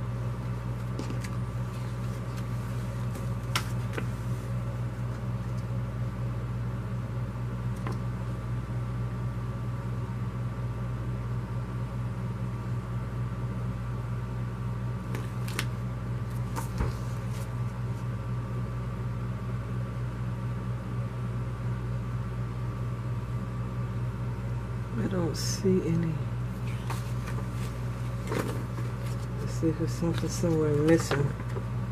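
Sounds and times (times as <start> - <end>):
low mechanical hum: 0.0 - 31.9
paper flyers rustling: 0.7 - 4.5, 26.6 - 31.6.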